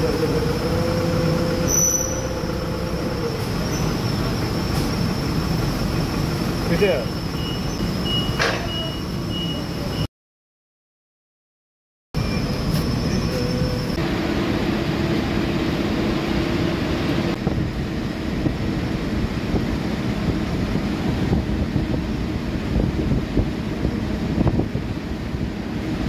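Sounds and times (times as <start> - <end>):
machinery rumble and hiss: 0.0 - 10.0.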